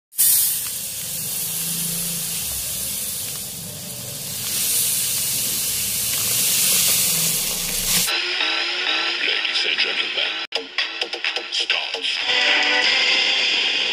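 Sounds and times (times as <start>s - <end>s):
seeds pouring into metal bowl: 0.1s - 8.1s
music: 5.9s - 13.9s.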